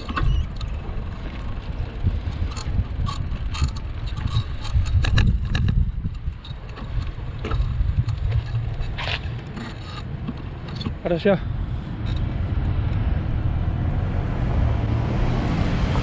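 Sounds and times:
bicycle clicks and rattles: 0.0s - 11.3s, 12.0s - 12.4s
wind rumbling on microphone: 0.0s - 16.0s.

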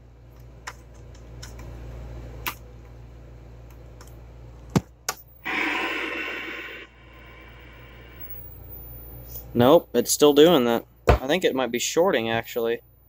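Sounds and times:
low steady hum: 0.0s - 13.0s
loud buzzing hiss: 5.4s - 8.4s.

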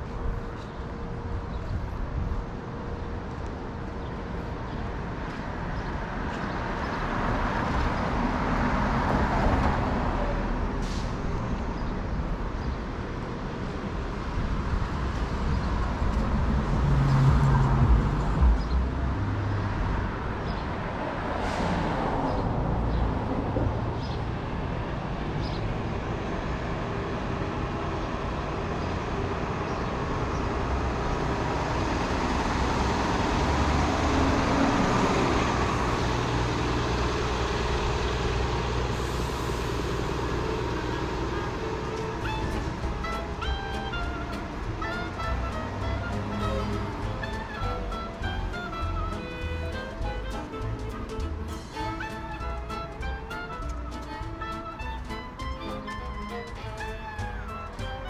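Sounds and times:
street traffic passing: 0.0s - 58.0s
loud vehicle passing: 14.0s - 58.0s.

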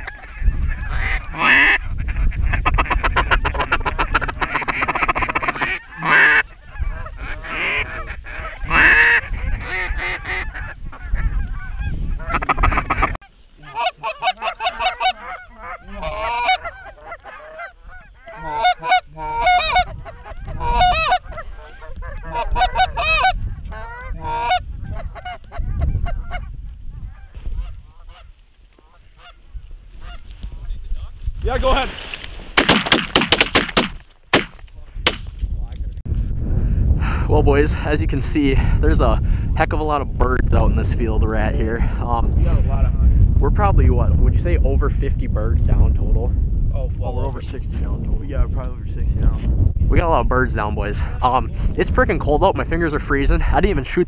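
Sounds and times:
geese honking: 0.0s - 30.3s.

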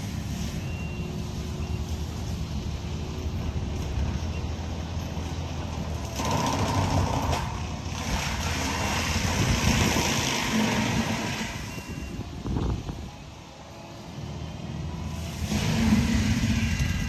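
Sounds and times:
distant diesel engine rumble: 0.0s - 17.0s
mulcher grinding noise: 5.6s - 12.2s, 15.1s - 17.0s.

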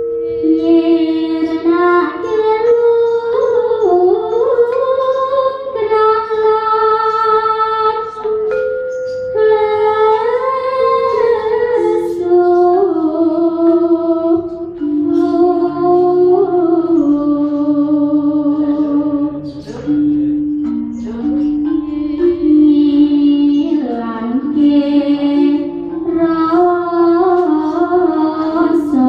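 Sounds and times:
woman singing long bending notes: 0.0s - 29.0s.

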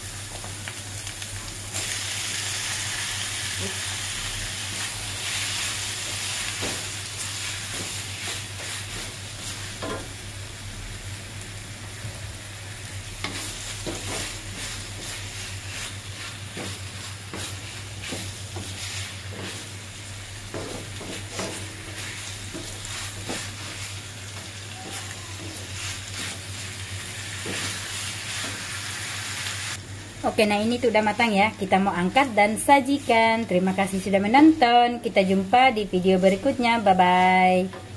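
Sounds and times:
food sizzling in a wok: 0.0s - 37.9s
spatula scraping and knocking pan: 16.5s - 19.8s, 20.5s - 26.7s.

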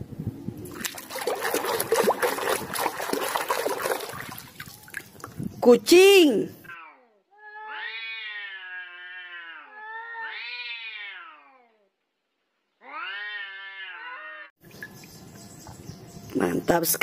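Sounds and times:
cats yowling: 7.4s - 11.6s, 12.8s - 14.5s.

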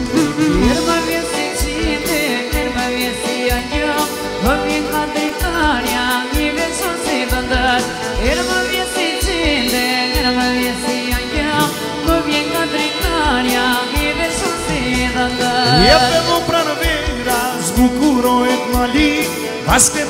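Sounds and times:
steady drum beat: 0.0s - 1.2s, 14.1s - 16.7s
ornamented lead melody: 0.0s - 6.7s, 7.6s - 19.6s.

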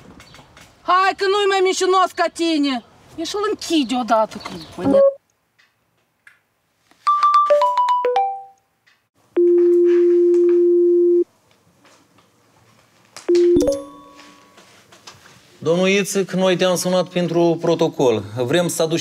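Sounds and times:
low ringing tone: 13.3s - 14.6s
short chime: 13.4s - 14.6s.

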